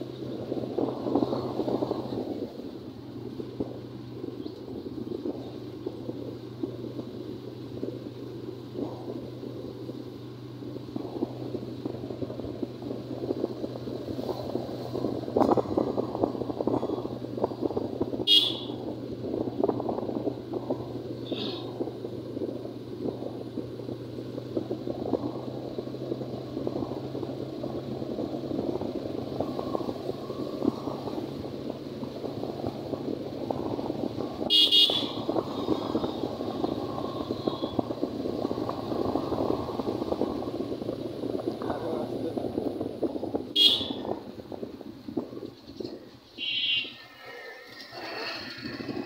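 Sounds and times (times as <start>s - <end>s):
engine and road noise: 0.0s - 49.0s
vehicle horn beeping: 18.3s - 18.8s, 34.5s - 35.3s, 43.6s - 44.0s, 46.4s - 47.2s.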